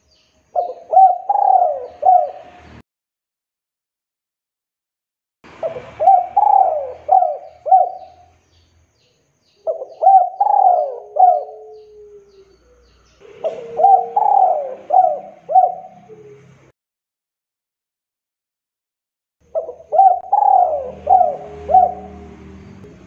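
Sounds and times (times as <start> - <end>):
dove cooing: 0.6 - 2.6, 5.5 - 8.3, 9.6 - 16.7, 19.5 - 22.4.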